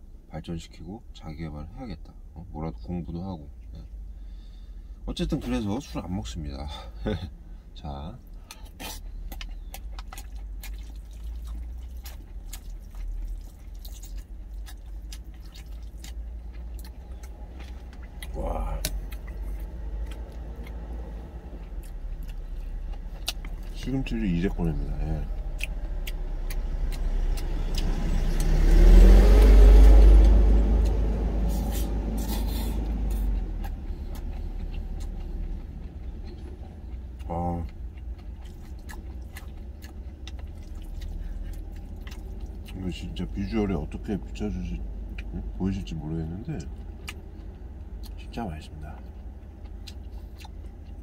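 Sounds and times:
steady low rumble: 0:00.0 - 0:51.0
chewing with wet mouth clicks: 0:08.2 - 0:51.0
heavy vehicle passing: 0:14.8 - 0:37.2.

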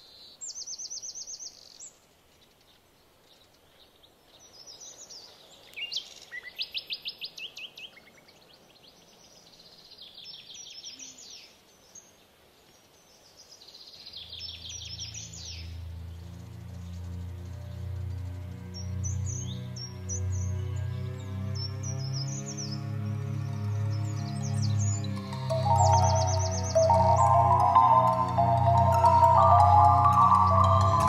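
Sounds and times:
faint background hiss: 0:00.0 - 0:18.7
birds chirping: 0:14.3 - 0:31.0
low droning music note: 0:15.7 - 0:31.0.

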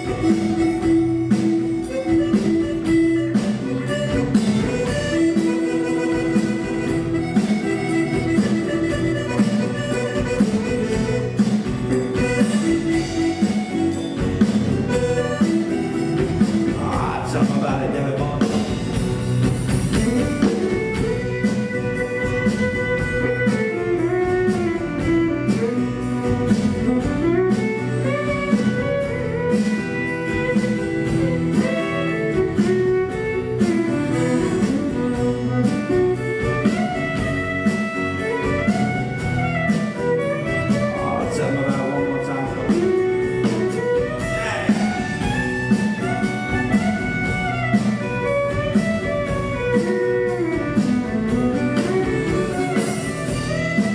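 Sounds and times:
button accordion: 0:00.0 - 0:16.8
fiddle: 0:00.0 - 0:53.9
guitar: 0:00.0 - 0:53.9
steady beat: 0:00.0 - 0:53.9.

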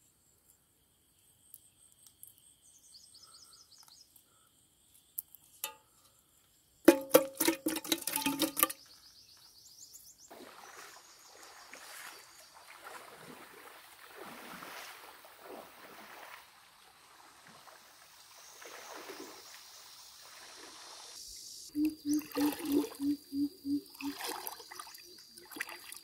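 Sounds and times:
soft water splashes: 0:10.3 - 0:21.2, 0:21.8 - 0:23.1, 0:23.9 - 0:26.0
river water lapping: 0:10.3 - 0:26.0.

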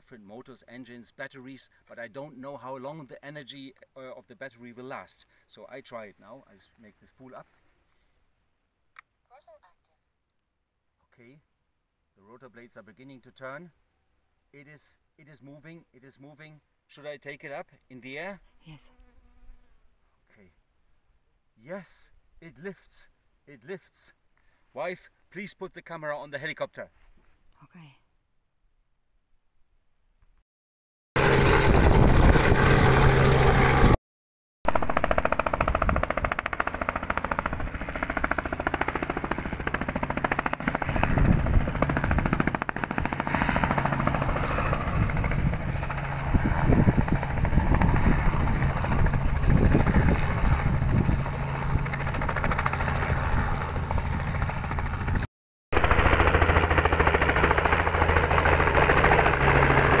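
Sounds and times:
helicopter rotor blades chopping: 0:31.2 - 0:34.0, 0:34.7 - 1:00.0.

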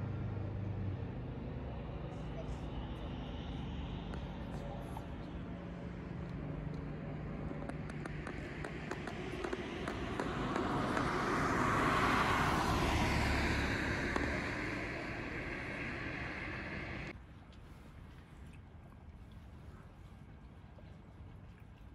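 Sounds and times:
car passing: 0:00.0 - 0:17.1.

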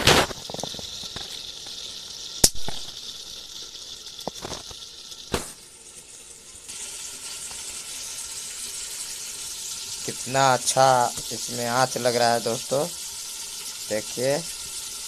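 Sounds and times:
food sizzling in a pot: 0:00.0 - 0:15.0.

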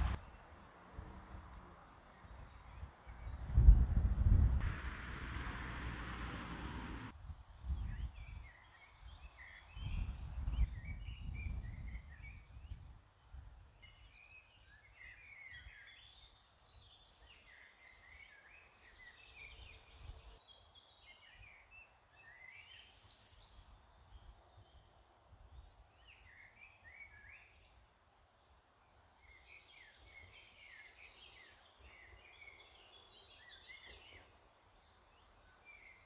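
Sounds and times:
wind rumble on microphone: 0:00.0 - 0:00.3, 0:00.9 - 0:14.0
small birds chirping: 0:01.6 - 0:36.0.

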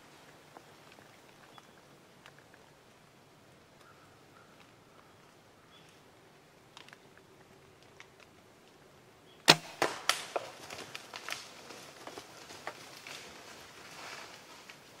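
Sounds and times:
cracks: 0:06.7 - 0:08.8, 0:09.4 - 0:14.8
deer running through brush: 0:09.7 - 0:15.0.

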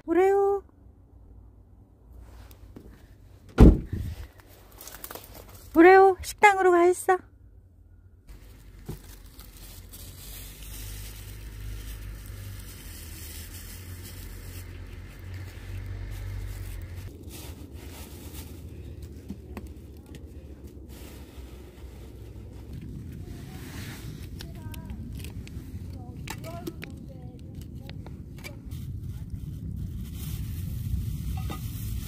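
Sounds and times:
low rumble: 0:07.3 - 0:32.0.

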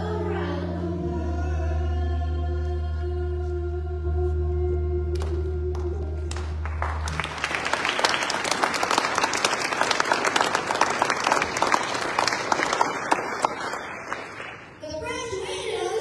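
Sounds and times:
audience applause: 0:06.3 - 0:14.8.

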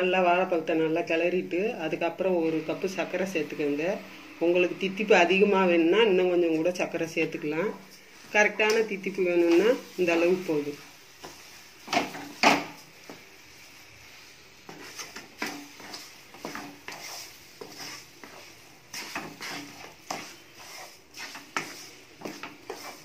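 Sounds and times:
wooden spatula scraping a pan: 0:06.1 - 0:23.0.

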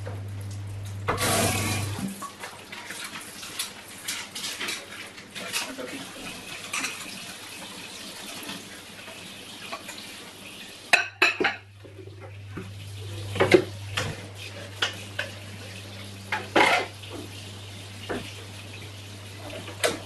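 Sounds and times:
dishes clattering: 0:04.0 - 0:07.2, 0:10.9 - 0:12.4, 0:16.3 - 0:17.4.

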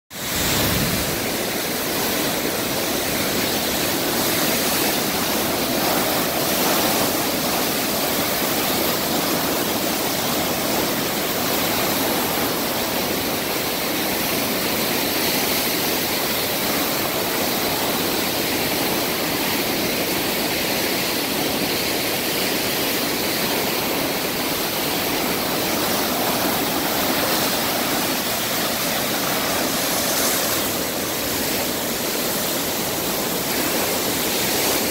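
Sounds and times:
water surging into concrete basin: 0:00.1 - 0:34.9.

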